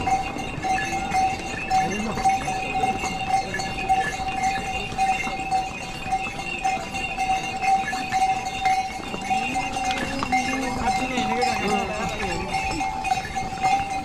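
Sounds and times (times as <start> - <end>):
harness bells ringing: 0.0 - 14.0
hooves clip-clopping on stone: 0.0 - 14.0.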